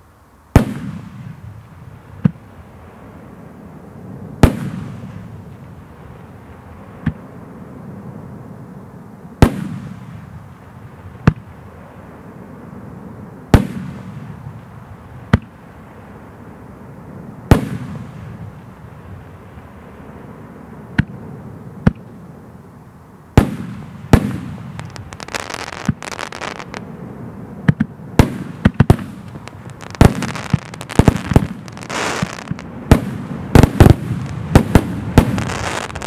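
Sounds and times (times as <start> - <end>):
firework launch crack: 0.5 - 1.5, 4.4 - 5.4, 9.4 - 10.3, 23.4 - 26.9, 27.6 - 36.0
firework aerial burst: 23.4 - 26.8, 28.1 - 36.0.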